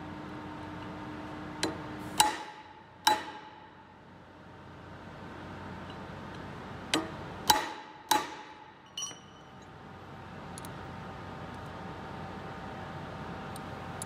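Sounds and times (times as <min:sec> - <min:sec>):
hammer striking steel: 0:01.6 - 0:03.9, 0:06.9 - 0:09.6
light metal clink: 0:08.8 - 0:09.8.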